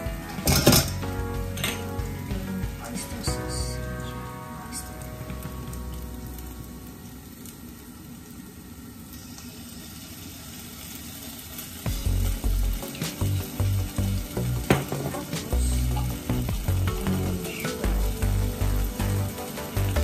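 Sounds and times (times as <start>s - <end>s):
food sizzling in a wok: 0.0s - 20.0s.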